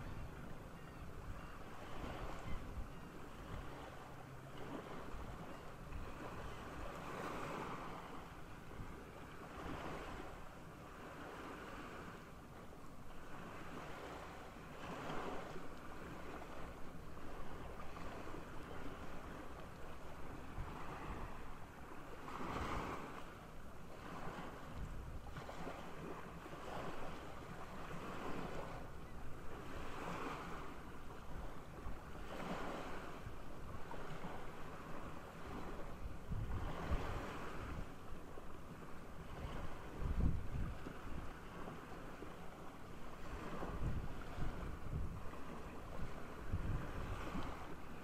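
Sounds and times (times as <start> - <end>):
wind noise on microphone: 0.0 - 4.0, 20.2 - 21.6, 22.3 - 23.2, 24.0 - 28.8, 31.3 - 38.0, 39.2 - 42.4, 43.0 - 48.0
small waves washing on shore: 0.0 - 48.0.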